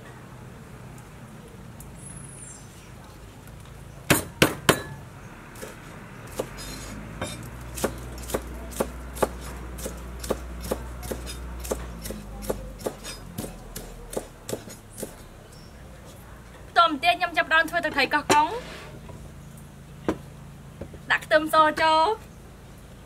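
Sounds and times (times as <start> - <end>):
cleaver chopping on wooden board: 4.1 - 5.0, 5.6 - 15.2.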